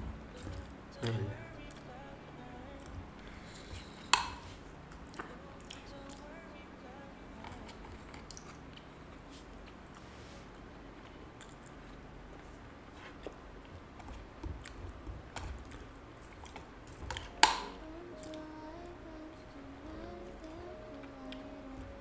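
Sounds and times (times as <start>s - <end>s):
plastic spoon clicking on cup: 4.1s - 4.4s, 17.1s - 17.7s
mouth and chewing noises: 7.5s - 10.0s, 10.6s - 17.6s.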